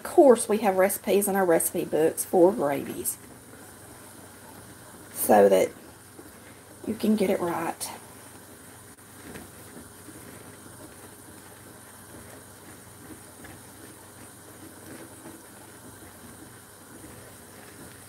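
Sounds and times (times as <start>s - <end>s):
whisk swishing: 9.0s - 18.0s.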